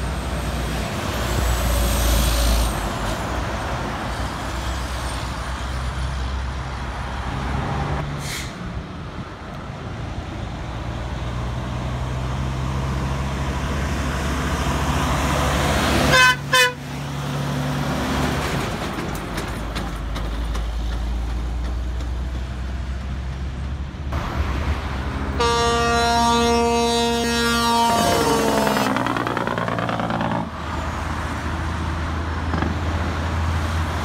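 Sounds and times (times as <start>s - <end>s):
truck diesel engine passing: 0.0s - 34.0s
long horn blast: 16.0s - 16.9s, 25.3s - 29.2s
short horn toots: 25.4s - 29.0s.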